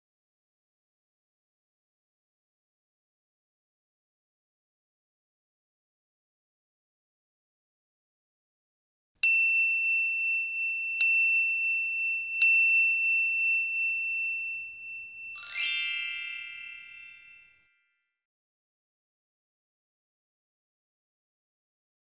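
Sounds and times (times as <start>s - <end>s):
bell-like chime: 9.2s - 17.7s
shimmering chime: 9.7s - 17.6s.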